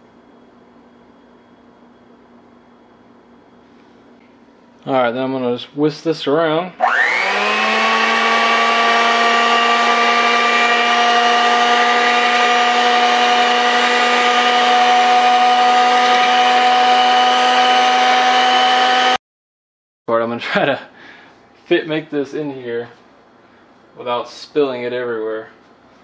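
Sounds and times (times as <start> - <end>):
electric hand mixer whine: 6.8 - 19.2.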